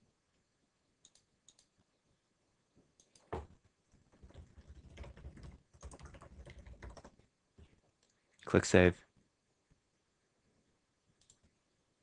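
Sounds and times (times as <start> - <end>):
faint keyboard typing: 1.0 - 2.0, 2.9 - 8.5, 11.1 - 11.7.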